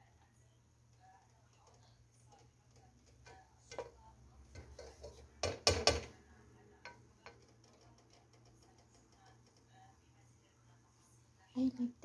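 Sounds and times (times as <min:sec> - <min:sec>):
spoon scraping metal pot: 0:03.0 - 0:06.1.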